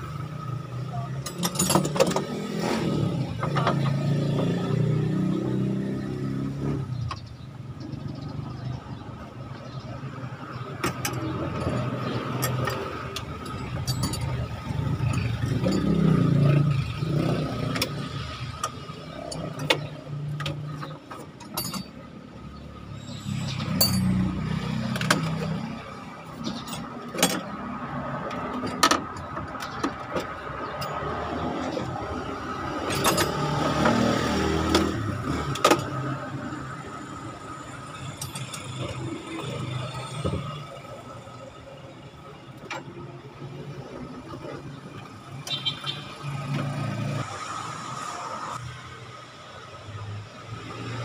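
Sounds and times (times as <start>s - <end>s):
metal tools clinking: 1.2s - 2.3s, 10.9s - 16.2s, 18.5s - 22.1s, 23.6s - 25.6s, 26.3s - 27.6s, 32.8s - 33.8s, 37.9s - 40.0s.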